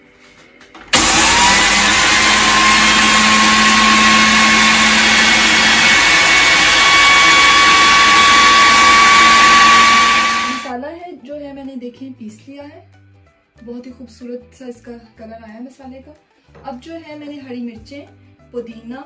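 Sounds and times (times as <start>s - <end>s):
food processor motor grinding spices: 0.9s - 10.7s.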